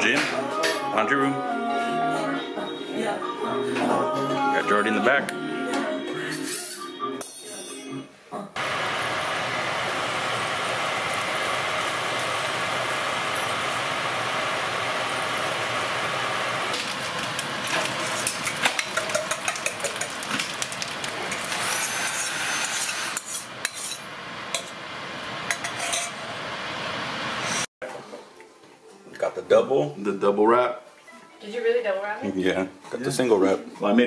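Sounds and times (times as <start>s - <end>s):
potatoes sizzling in frying pan: 8.6s - 25.4s
metal bowl clinking: 17.9s - 21.5s
spatula scraping pan: 21.3s - 24.1s.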